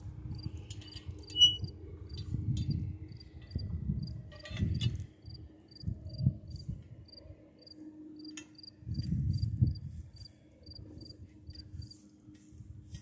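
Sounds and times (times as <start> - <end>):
wind gusts on microphone: 0.0 - 5.0, 5.8 - 7.0, 8.8 - 11.9.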